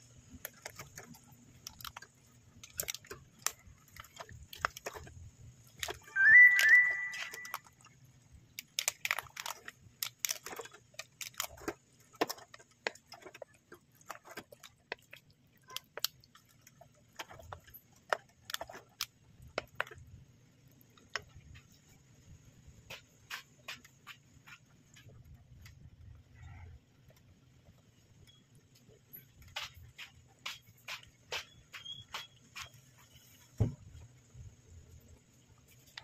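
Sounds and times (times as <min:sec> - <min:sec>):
spaghetti being stirred wet clicks: 0:00.1 - 0:26.2.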